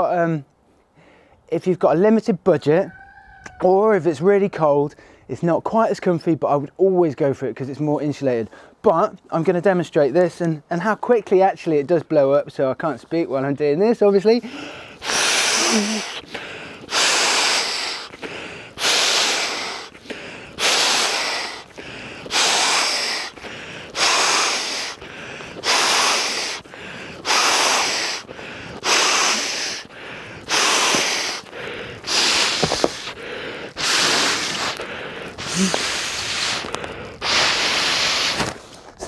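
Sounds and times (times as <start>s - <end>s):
breath blown into mat valve: 14.5s - 38.8s.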